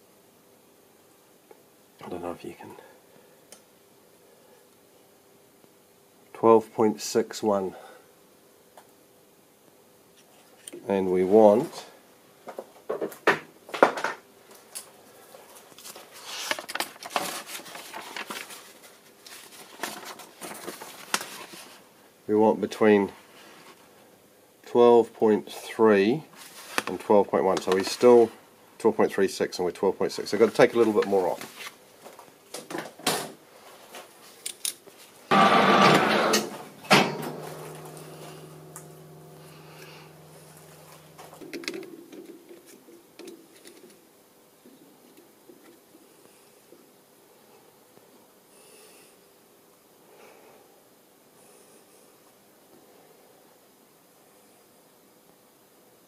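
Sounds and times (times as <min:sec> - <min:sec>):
faint steady hum: 0:00.0 - 0:56.0
sharp knock: 0:35.3 - 0:40.0.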